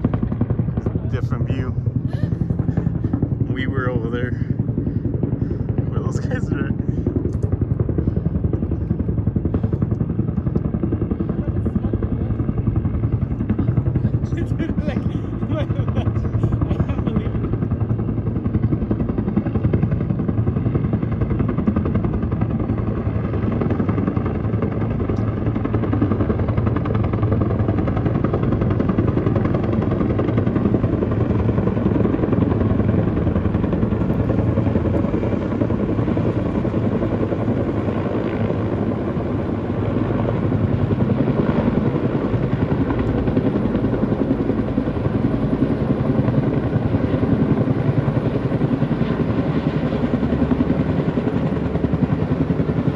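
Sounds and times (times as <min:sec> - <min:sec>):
helicopter rotor beating: 0:00.0 - 0:52.9.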